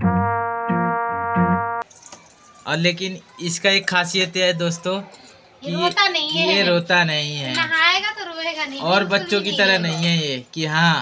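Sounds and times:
held chord: 0:00.0 - 0:01.8
repeated bass notes: 0:00.0 - 0:01.8.

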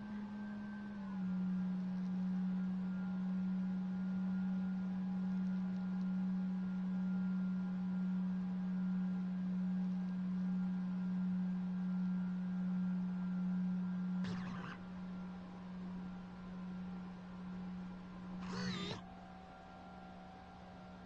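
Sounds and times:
model aircraft motor humming: 0:14.2 - 0:14.8, 0:18.3 - 0:19.0.

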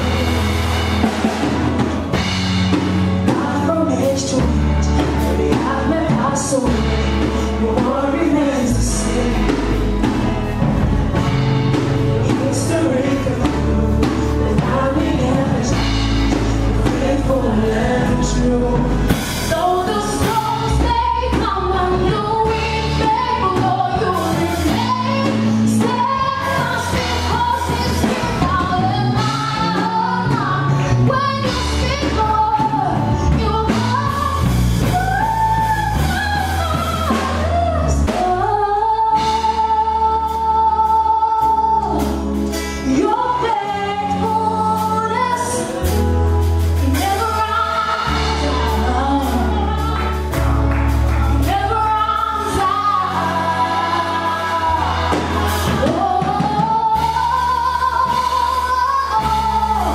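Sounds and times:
band with bass and drums: 0:00.0 - 0:59.9
voices singing: 0:12.0 - 0:31.7, 0:46.8 - 0:50.4, 0:51.4 - 0:59.9.

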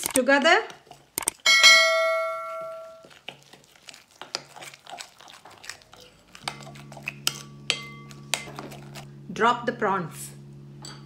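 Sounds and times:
low steady hum: 0:00.0 - 0:03.8, 0:04.5 - 0:11.0
chime ringing: 0:01.5 - 0:03.0
spoon scraping glass bowl: 0:06.4 - 0:09.1.

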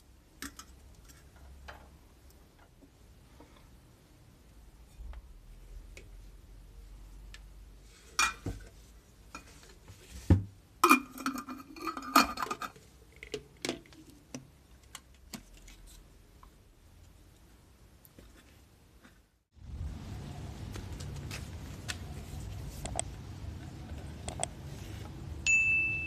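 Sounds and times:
glass jar clinking against metal: 0:10.9 - 0:12.8.

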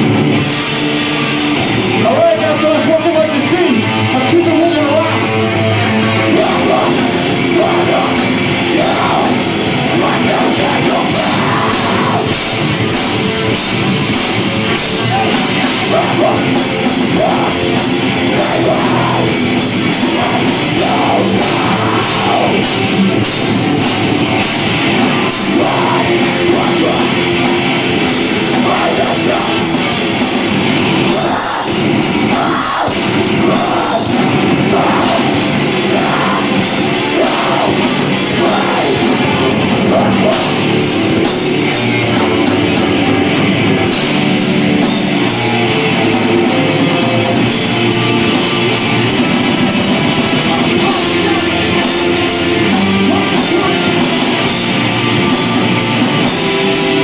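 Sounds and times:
drums and cymbals: 0:00.0 - 0:02.3, 0:06.3 - 0:57.0
rock band playing heavy music: 0:00.0 - 0:57.0
person singing: 0:06.2 - 0:12.6, 0:14.8 - 0:23.5, 0:25.0 - 0:42.5, 0:50.2 - 0:57.0.

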